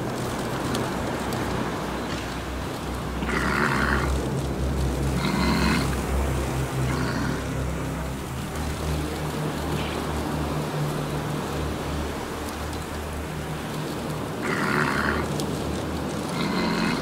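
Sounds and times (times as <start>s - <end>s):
steady low rumble: 0.0s - 17.0s
walrus grunting calls: 3.2s - 4.3s, 5.0s - 6.0s, 6.7s - 7.7s, 14.3s - 15.4s, 16.2s - 17.0s.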